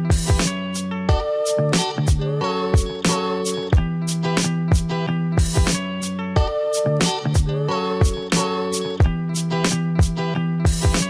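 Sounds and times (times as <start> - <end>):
plucked notes: 0.0 - 11.0
drum beat: 0.1 - 0.5, 2.8 - 3.1, 4.7 - 5.8, 10.0 - 11.0.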